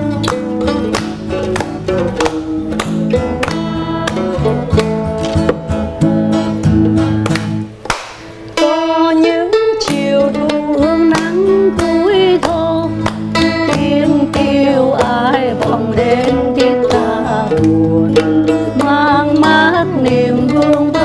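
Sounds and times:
acoustic guitar chords: 0.0 - 21.0
mandolin melody: 0.0 - 21.0.

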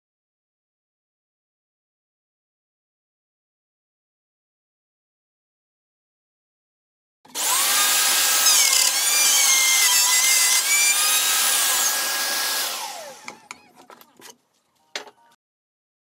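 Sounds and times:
router whine cutting wood: 7.3 - 13.6.

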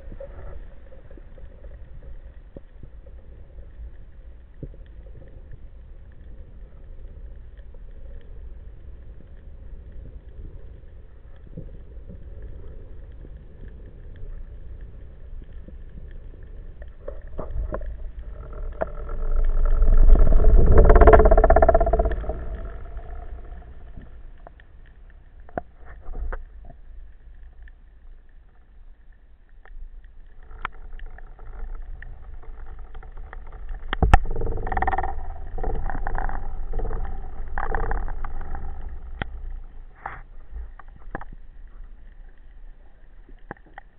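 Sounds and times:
low underwater rumble: 0.0 - 43.9
pitched hum: 13.8 - 26.3.

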